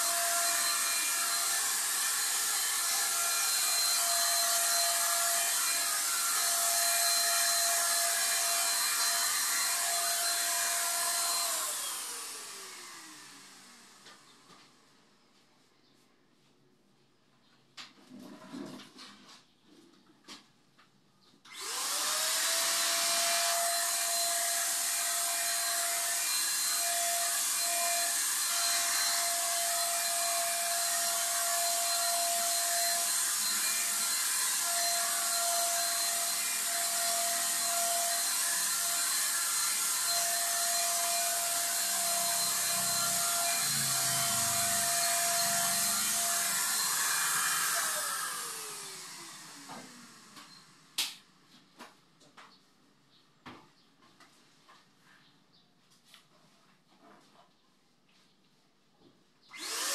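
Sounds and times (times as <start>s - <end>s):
paint spray gun motor whine: 0.0s - 14.6s, 21.5s - 51.2s, 59.5s - 59.9s.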